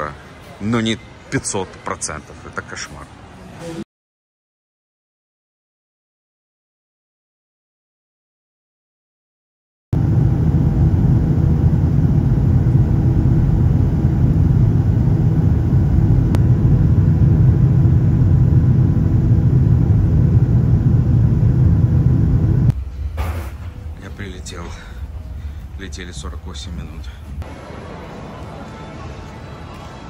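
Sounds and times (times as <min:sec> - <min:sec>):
faint steady hums: 0:10.0 - 0:23.1
jet airliner cabin rumble: 0:10.0 - 0:24.0.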